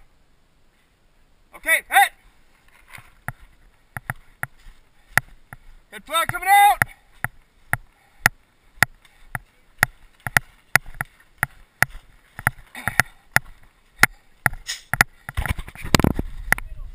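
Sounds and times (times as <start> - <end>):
footsteps crunching in snow: 2.3 - 7.7, 8.7 - 14.0.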